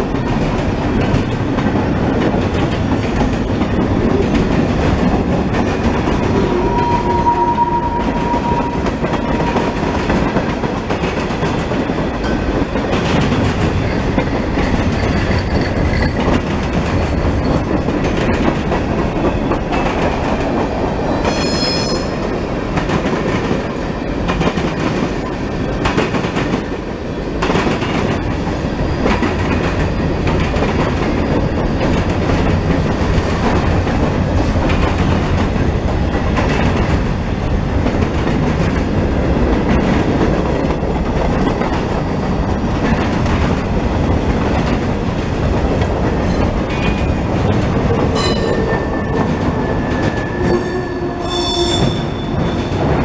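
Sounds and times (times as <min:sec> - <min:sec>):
freight train rumbling past: 0:00.0 - 0:53.0
high squeal: 0:06.3 - 0:09.9, 0:21.2 - 0:22.3, 0:48.2 - 0:52.9.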